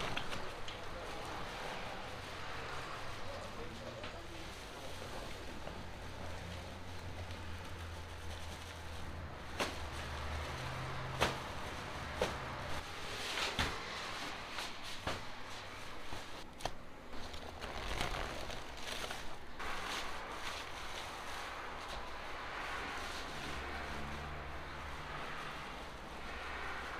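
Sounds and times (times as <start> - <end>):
cloth rustling and flapping: 6.9 - 22.3.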